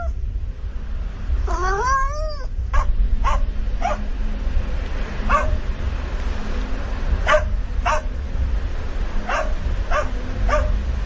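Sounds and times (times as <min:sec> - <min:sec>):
low rumble: 0:00.0 - 0:11.0
cat meowing: 0:01.5 - 0:02.5.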